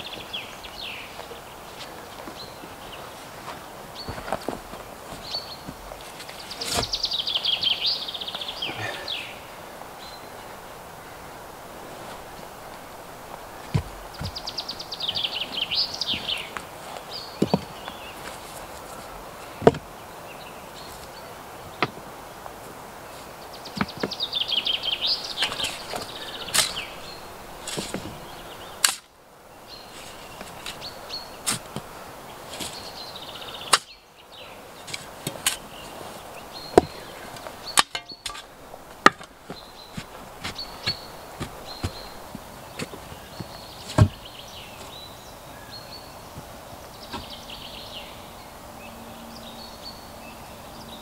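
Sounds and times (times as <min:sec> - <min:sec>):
spade cutting into stony soil: 0:06.6 - 0:07.0, 0:25.4 - 0:26.8, 0:28.8 - 0:29.1, 0:31.5 - 0:31.7, 0:37.7 - 0:39.3
songbird trilling: 0:39.5 - 0:46.2.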